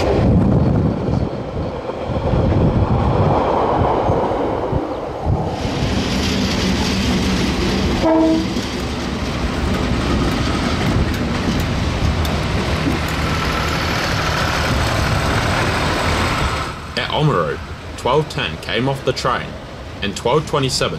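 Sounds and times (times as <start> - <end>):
train wagons rolling on rails: 0.0 - 20.9
locomotive engine running: 5.6 - 20.0
train horn blast: 8.0 - 8.6.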